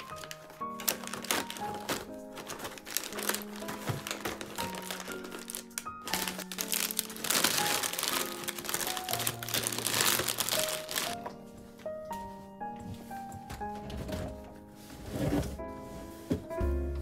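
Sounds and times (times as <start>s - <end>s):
plastic packets crinkling: 0.0s - 11.2s
background music melody: 0.0s - 17.0s.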